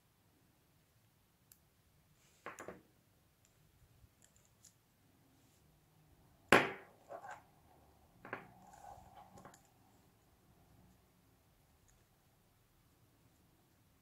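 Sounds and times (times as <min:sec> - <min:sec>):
paracord rubbing on metal hook: 0:07.0 - 0:07.5, 0:08.5 - 0:09.9.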